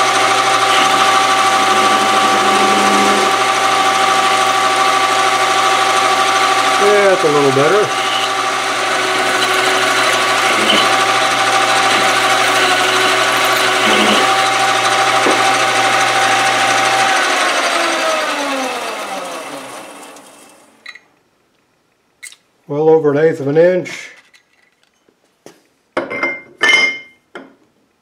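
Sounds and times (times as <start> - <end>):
metal lathe cutting steel: 0.0 - 20.8
lathe chuck spinning down: 0.0 - 21.0.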